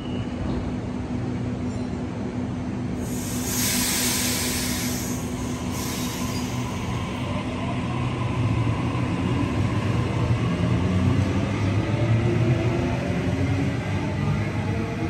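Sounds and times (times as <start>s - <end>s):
train wheels and motors rumbling: 0.0s - 15.0s
train air hiss: 3.0s - 7.3s.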